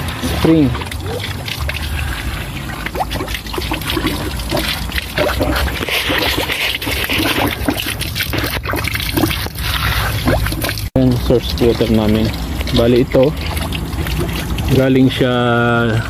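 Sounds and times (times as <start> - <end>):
gurgling plinks: 0.0 - 16.0
water splashing onto rocks: 0.0 - 16.0.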